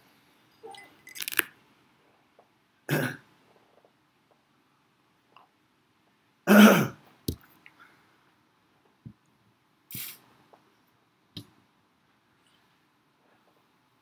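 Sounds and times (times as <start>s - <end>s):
man clearing throat: 2.9s - 3.2s, 6.5s - 7.0s.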